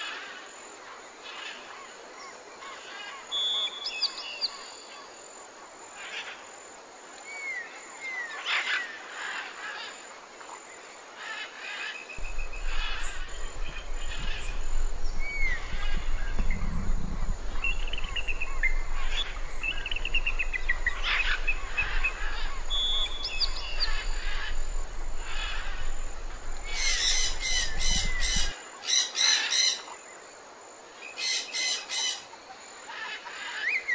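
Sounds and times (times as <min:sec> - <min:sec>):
outdoor ambience: 0:00.0 - 0:33.9
small birds chirping: 0:12.1 - 0:29.9
low steady rumble: 0:12.2 - 0:28.5.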